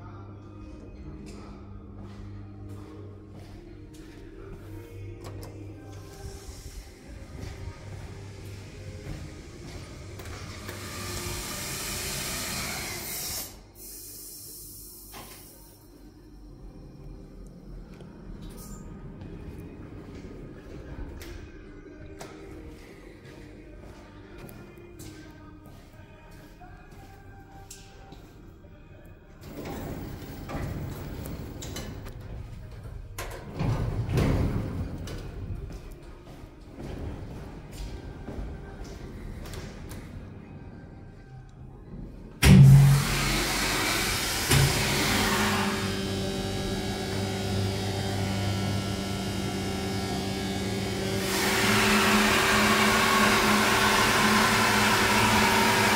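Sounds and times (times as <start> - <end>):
footsteps on steel floor: 1.4 - 5.2, 7.0 - 10.7, 30.7 - 40.2
lift doors sliding: 29.4 - 35.6.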